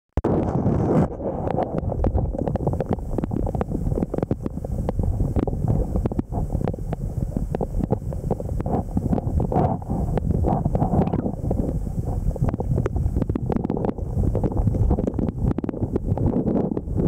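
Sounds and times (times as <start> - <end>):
underwater clicks and crackles: 0.2 - 17.0
underwater water rumble: 0.2 - 17.0.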